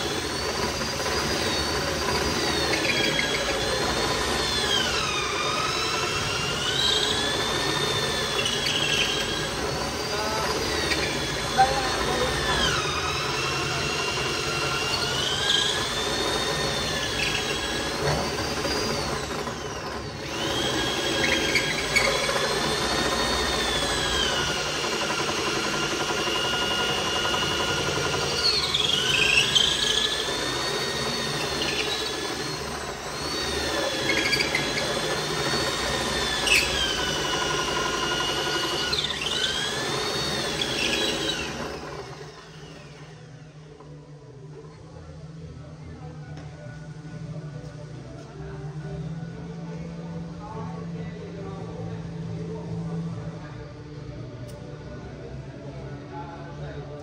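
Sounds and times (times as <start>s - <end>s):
electric drill boring into wood: 0.0s - 43.3s.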